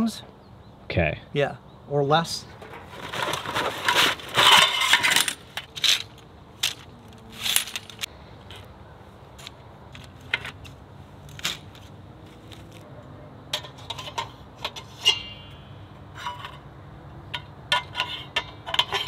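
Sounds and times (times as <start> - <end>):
metal panels clinking and scraping: 2.4 - 8.1, 13.5 - 16.7, 17.3 - 19.0
ringing metal clank: 14.9 - 16.6.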